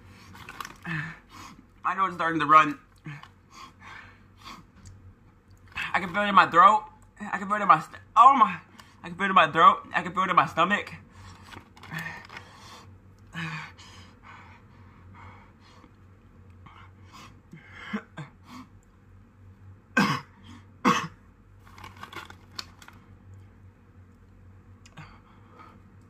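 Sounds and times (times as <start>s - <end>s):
breathing: 3.1s - 4.7s, 11.1s - 15.9s, 25.0s - 25.9s
man coughing: 20.0s - 21.2s.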